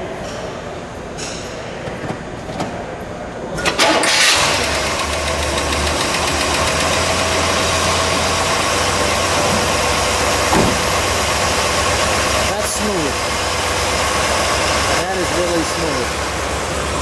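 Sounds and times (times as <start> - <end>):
car engine starting and idling: 3.6 - 17.0.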